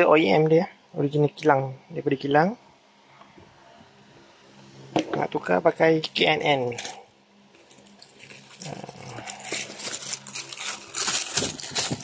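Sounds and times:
cardboard and plastic wrapping rustling: 7.6s - 12.0s.

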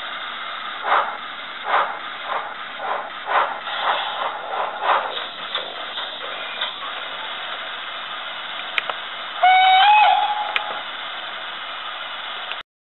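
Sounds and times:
steam hiss from small speaker: 0.7s - 7.6s
steam whistle blast: 9.4s - 10.9s.

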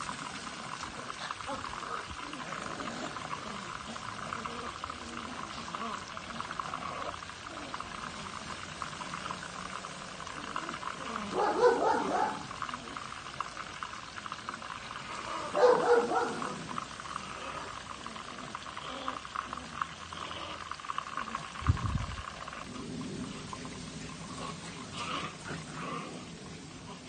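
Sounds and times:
chicken sizzling in deep fryer: 0.0s - 27.0s
dogs barking: 11.2s - 12.7s, 15.4s - 16.8s.

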